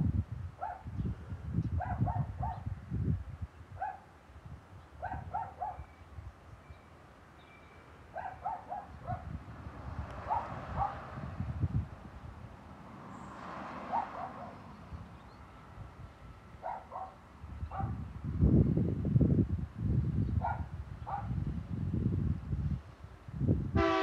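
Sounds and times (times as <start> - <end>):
dog barking: 0.6 - 0.9, 1.8 - 2.7, 3.8 - 4.1, 5.0 - 5.9, 8.1 - 9.3, 10.2 - 11.1, 13.9 - 14.6, 16.6 - 18.0, 20.4 - 21.4.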